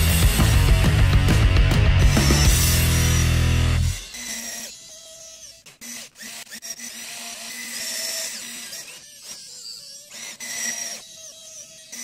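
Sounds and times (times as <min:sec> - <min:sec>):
small electric motors whining: 0:02.0 - 0:12.0.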